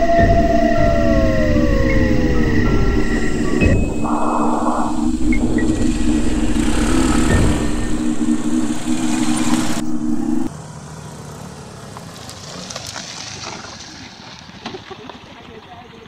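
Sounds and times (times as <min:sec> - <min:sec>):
droning background music: 0:00.0 - 0:10.5
motorcycle engines running: 0:05.4 - 0:16.0.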